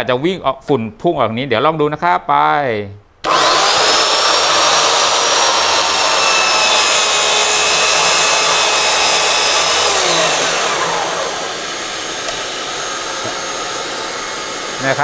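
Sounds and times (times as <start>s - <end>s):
saw motor winding down: 3.2s - 15.0s
track saw high whine: 3.2s - 15.0s.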